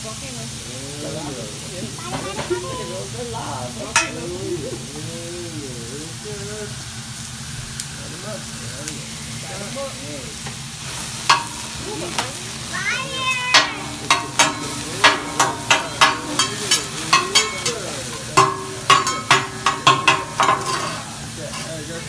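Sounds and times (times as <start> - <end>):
food sizzling on a griddle: 0.0 - 22.0
metal spatulas clacking: 4.0 - 4.2, 11.3 - 11.8, 13.5 - 21.8.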